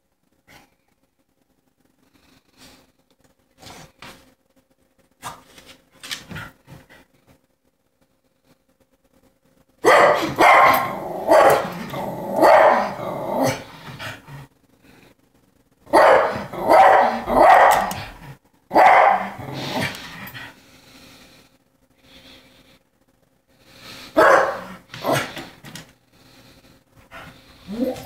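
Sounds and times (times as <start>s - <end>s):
dog barking: 9.8s - 11.8s, 12.4s - 13.0s, 15.9s - 18.0s, 18.7s - 19.4s, 24.2s - 25.2s.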